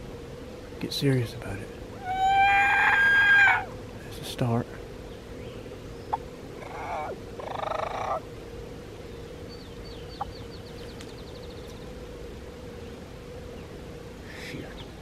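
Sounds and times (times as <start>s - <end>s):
turkey yelp and cackle: 2.0s - 3.7s, 6.6s - 8.2s.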